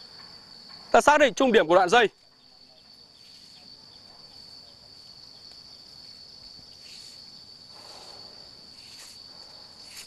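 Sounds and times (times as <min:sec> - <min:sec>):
high-pitched insect drone: 0:00.0 - 0:10.0
hammock cord rustling: 0:06.2 - 0:10.0.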